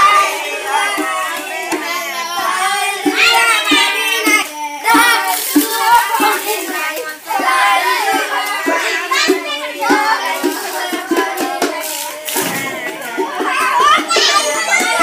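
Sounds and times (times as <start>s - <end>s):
children singing a chant: 0.0s - 15.0s.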